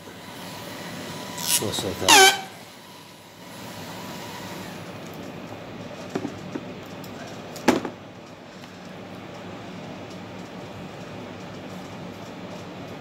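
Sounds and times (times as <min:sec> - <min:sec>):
small motor whine: 0:00.0 - 0:05.0.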